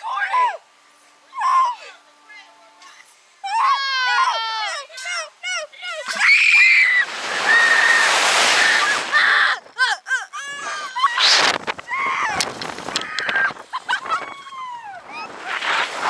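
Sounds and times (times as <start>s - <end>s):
girls screaming: 6.0s - 15.4s.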